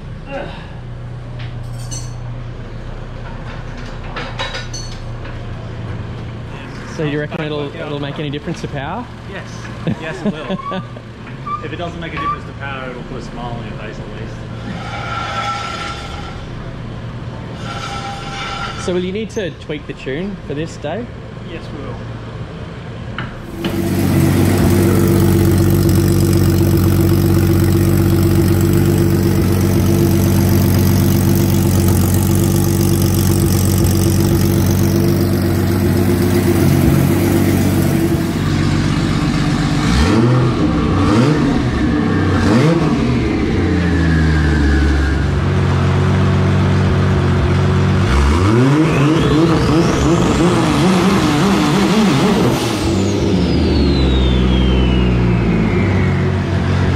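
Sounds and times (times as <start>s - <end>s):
car engine revving: 23.4s - 56.9s.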